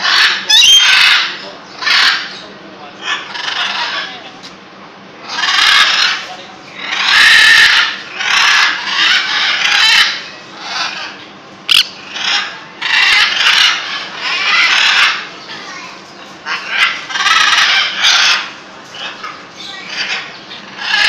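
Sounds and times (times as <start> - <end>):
parrots screeching: 0.0 - 2.4, 3.0 - 4.3, 5.2 - 15.7, 16.4 - 21.0.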